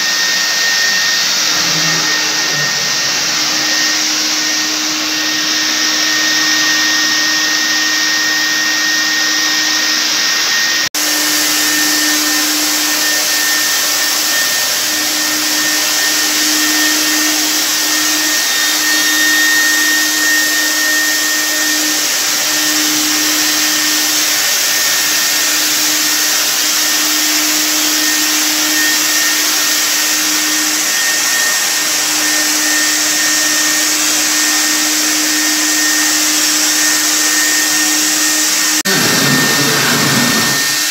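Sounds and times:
fogger motor blowing and whining: 0:00.0 - 0:40.9.

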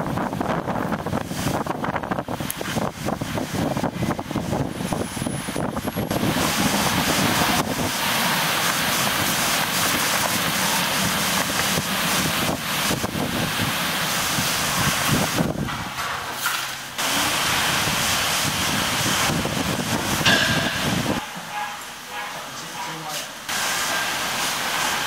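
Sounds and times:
gusty wind buffeting microphone: 0:00.0 - 0:16.0, 0:17.4 - 0:21.3.

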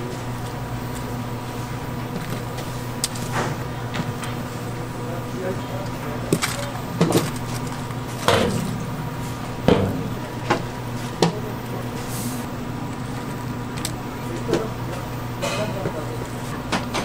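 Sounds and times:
steady low hum: 0:08.2 - 0:11.2
sharp knocks: 0:08.3 - 0:10.8.

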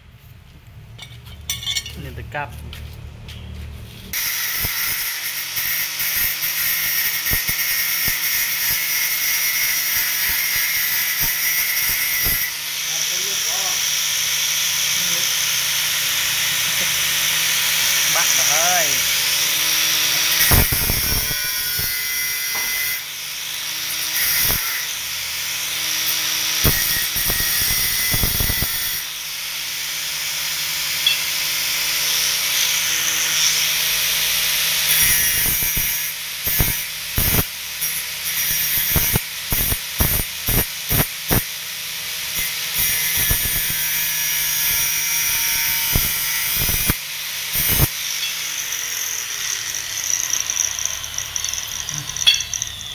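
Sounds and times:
angle grinder whining: 0:04.1 - 0:52.9
grinder disc scraping: 0:47.6 - 0:52.9.

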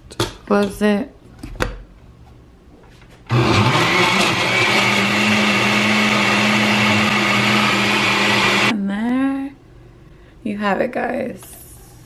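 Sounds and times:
blender motor running: 0:03.3 - 0:08.7.

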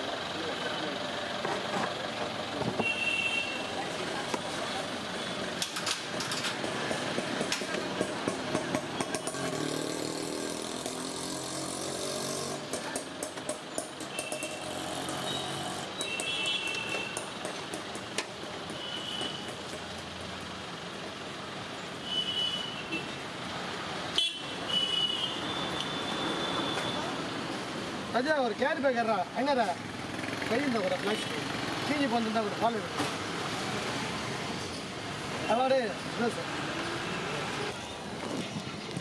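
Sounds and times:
vehicles passing: 0:00.0 - 0:22.1, 0:22.8 - 0:39.0.

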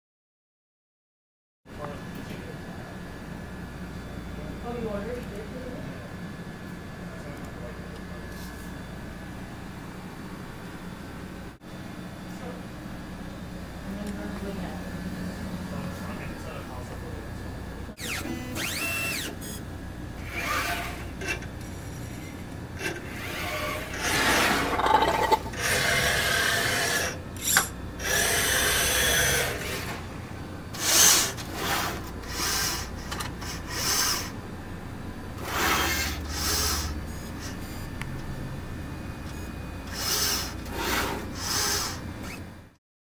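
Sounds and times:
robot arm moving mechanically: 0:18.0 - 0:19.6, 0:20.2 - 0:21.4, 0:35.4 - 0:37.6, 0:39.9 - 0:42.4.

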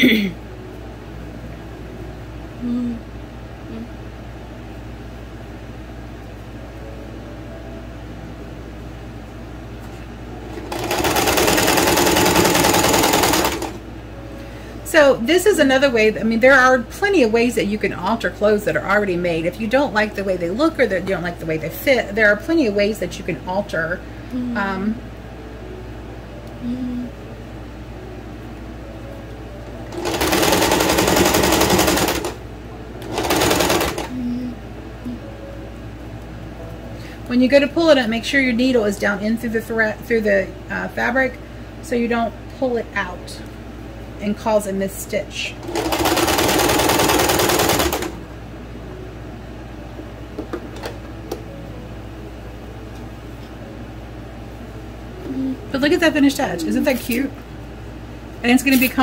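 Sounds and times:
faint steady hum: 0:00.0 - 0:59.0
sewing machine stitching: 0:10.5 - 0:13.8, 0:29.9 - 0:32.4, 0:33.0 - 0:34.1, 0:45.6 - 0:48.2.

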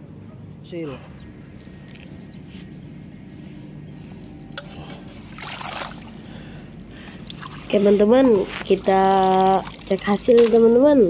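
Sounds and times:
water sloshing and dripping: 0:04.6 - 0:10.8
water splashing: 0:05.1 - 0:06.3, 0:07.2 - 0:10.7.

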